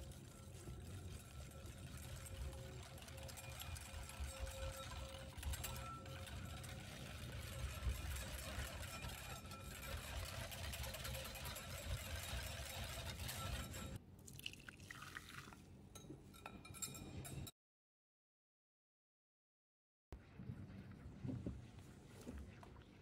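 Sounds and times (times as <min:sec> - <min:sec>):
utensils clinking: 0:00.1 - 0:14.0, 0:16.0 - 0:17.5.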